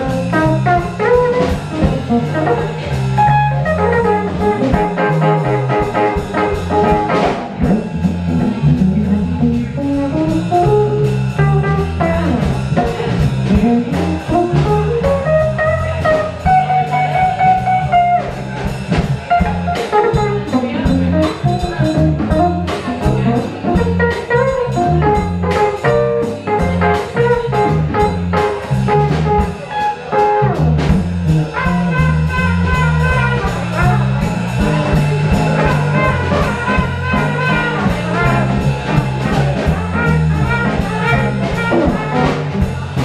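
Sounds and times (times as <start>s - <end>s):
drum kit: 0.0s - 43.0s
electric bass: 0.0s - 43.0s
electric guitar: 0.0s - 43.0s
trumpet playing melody: 31.5s - 34.3s, 35.3s - 42.7s.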